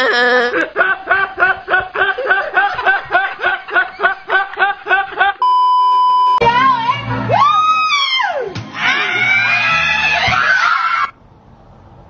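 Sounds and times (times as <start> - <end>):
man's high-pitched laughter: 0.0 - 5.4
electronic beep tone: 5.4 - 6.4.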